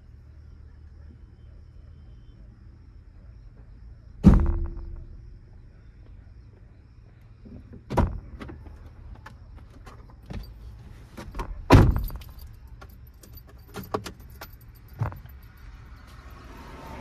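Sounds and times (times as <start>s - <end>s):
keys jingling: 11.9s - 16.4s.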